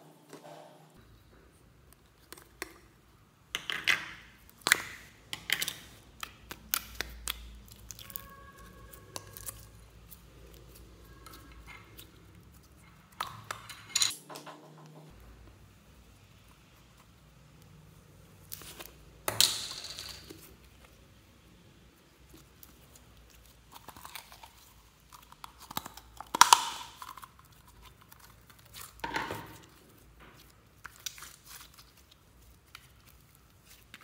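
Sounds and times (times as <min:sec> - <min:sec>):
sticky slime squelches: 0:04.3 - 0:13.6, 0:20.4 - 0:29.0, 0:29.6 - 0:34.0.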